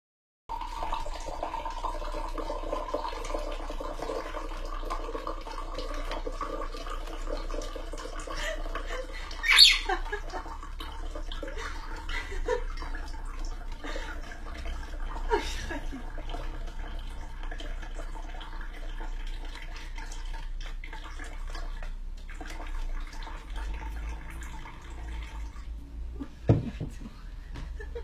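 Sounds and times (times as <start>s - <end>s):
running water: 0.5s - 28.0s
parrot squawk: 9.4s - 10.0s.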